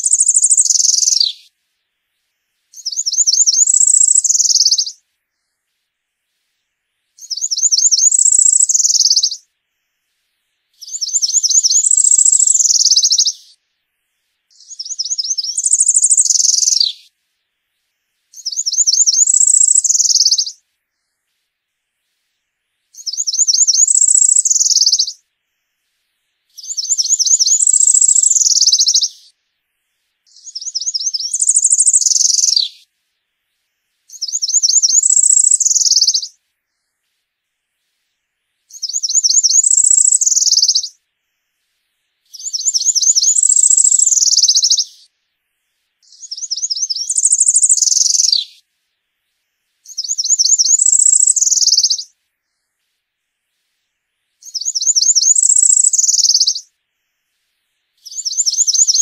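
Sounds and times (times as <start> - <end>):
warbler singing buzzy song: 0.0 - 1.6, 2.2 - 5.8, 7.0 - 10.0, 10.7 - 13.7, 14.5 - 17.2, 17.8 - 21.4, 22.8 - 25.8, 26.5 - 29.4, 30.3 - 33.0, 33.6 - 37.2, 38.6 - 41.6, 42.2 - 45.2, 46.0 - 53.0, 54.3 - 57.3, 57.9 - 59.0.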